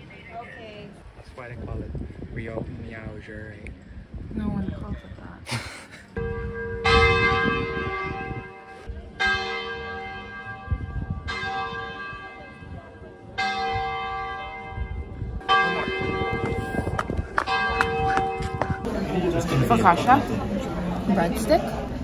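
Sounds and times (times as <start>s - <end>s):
church bell tolling: 6.2s - 20.0s.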